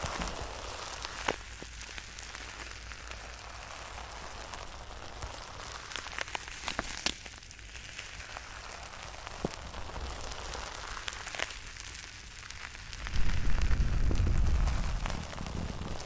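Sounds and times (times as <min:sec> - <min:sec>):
fingers crackling on microphone: 0:12.4 - 0:16.0.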